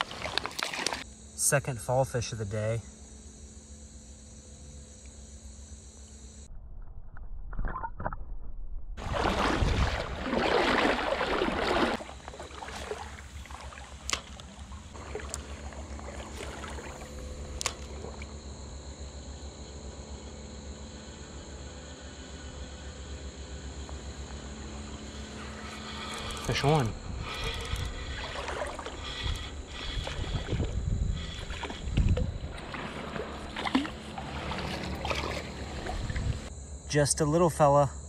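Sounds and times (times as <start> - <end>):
water splashing and sloshing: 0.0 - 1.1, 9.0 - 19.3, 23.5 - 36.5.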